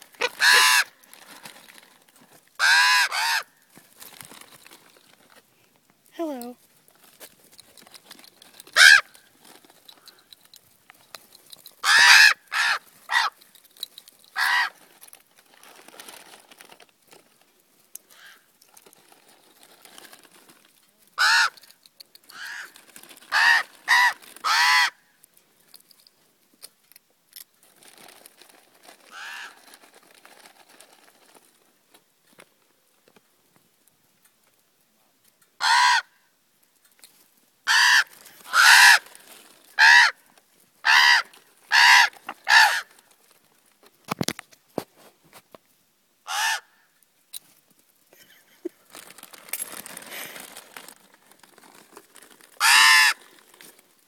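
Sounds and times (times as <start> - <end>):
ravens cawing: 0.1 - 1.1, 2.6 - 3.6, 8.8 - 9.1, 11.8 - 13.4, 14.4 - 14.8, 21.2 - 21.6, 22.3 - 25.0, 29.1 - 29.6, 35.6 - 36.1, 37.7 - 39.2, 39.8 - 40.2, 40.8 - 43.0, 46.3 - 46.8, 52.6 - 53.2.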